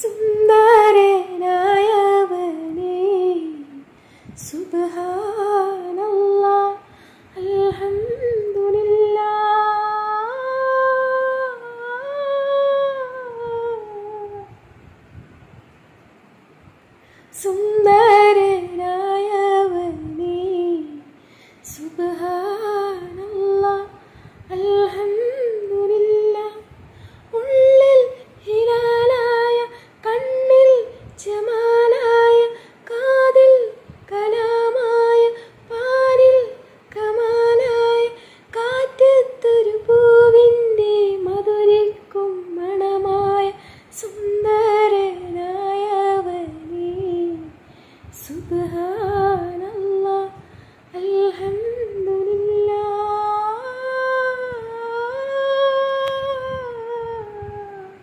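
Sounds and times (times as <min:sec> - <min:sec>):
woman singing unaccompanied: 0:00.0 - 0:14.9, 0:17.3 - 0:58.0.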